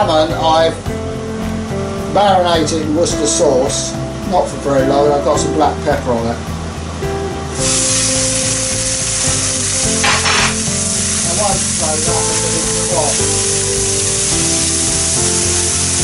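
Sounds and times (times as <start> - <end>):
fish sizzling in frying pan: 7.5 - 16.0.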